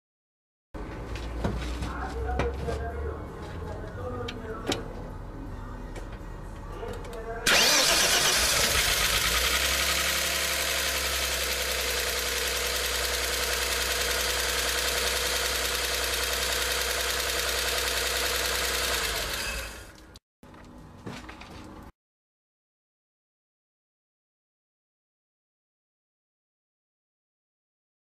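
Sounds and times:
car engine running: 0:07.5 - 0:19.9.

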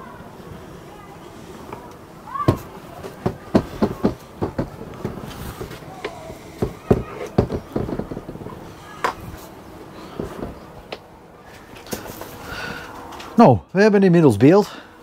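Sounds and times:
faint voices: 0:00.0 - 0:13.8
hard objects knocking and clicking: 0:02.5 - 0:09.4, 0:10.2 - 0:11.1.

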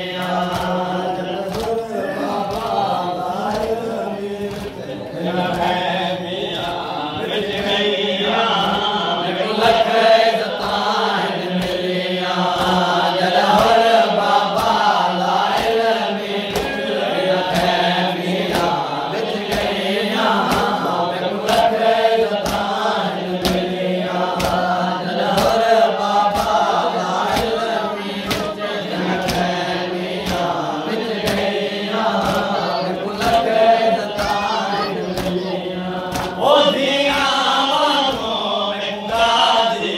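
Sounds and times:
men chanting in unison: 0:00.0 - 0:39.9
hands beating on chests: 0:34.1 - 0:36.4.

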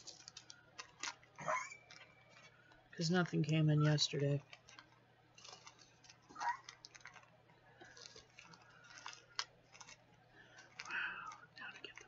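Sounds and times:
small pins clicking and rustling: 0:00.0 - 0:12.0.

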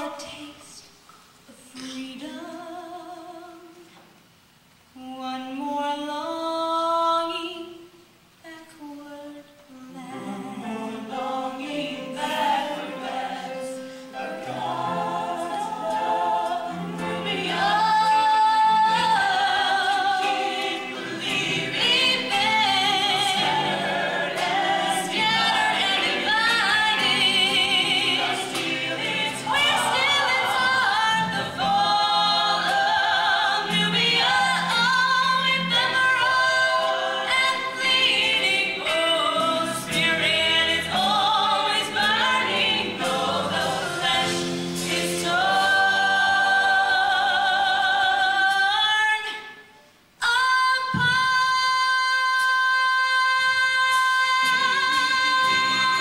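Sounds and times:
choir singing in harmony: 0:09.9 - 0:49.4, 0:53.3 - 0:56.0.

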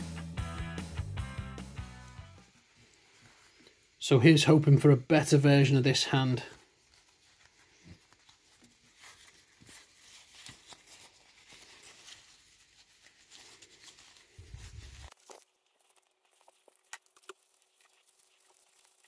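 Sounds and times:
fabric rustling and crinkling: 0:02.4 - 0:04.0, 0:06.2 - 0:19.0.

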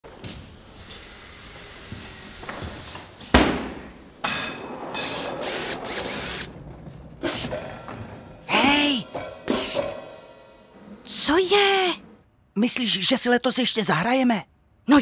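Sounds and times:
squeaking casters: 0:00.1 - 0:03.3, 0:04.5 - 0:09.2
wheeled case rolling on wooden floor: 0:02.4 - 0:09.5
loud bang: 0:03.3 - 0:11.1
hi-hat cymbal hit: 0:08.8 - 0:10.7.

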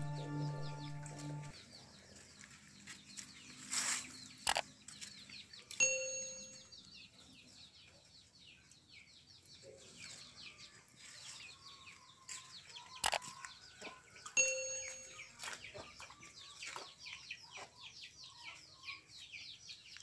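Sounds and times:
birds chirping: 0:00.0 - 0:01.9
bell-like ding: 0:05.8 - 0:06.8, 0:14.4 - 0:15.4.

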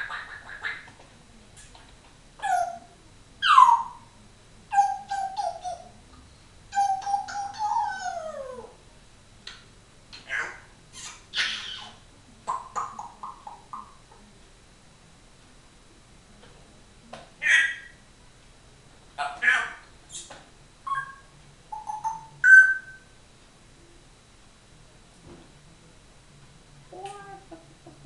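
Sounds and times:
parrot whistling and squawking: 0:06.7 - 0:08.4, 0:10.2 - 0:13.7, 0:17.4 - 0:18.0, 0:19.2 - 0:23.0.

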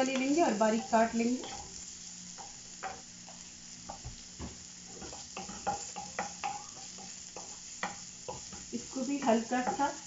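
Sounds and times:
vegetables sizzling in oil: 0:00.0 - 0:10.0
wooden spatula scraping a pan: 0:00.1 - 0:10.0.

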